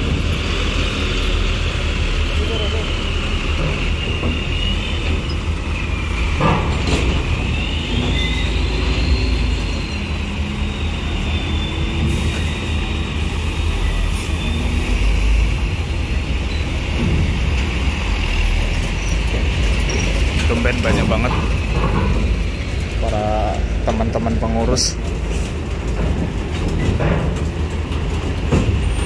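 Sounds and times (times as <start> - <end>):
heavy diesel vehicles rumbling: 0.0 - 29.0
clunk: 6.3 - 8.4, 25.4 - 29.0
high thin squeal: 7.5 - 12.8.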